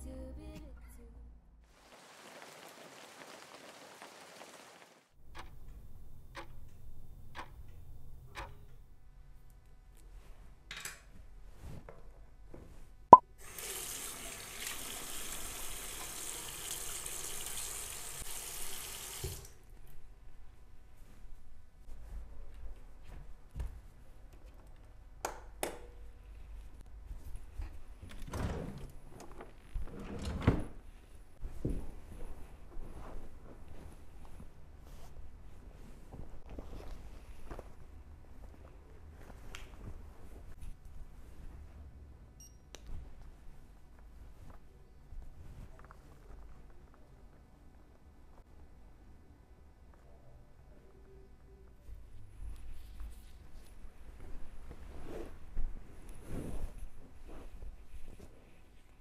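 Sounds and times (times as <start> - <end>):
rain falling on leaves: 1.7 - 5.1
water rushing from sink tap: 13.4 - 19.6.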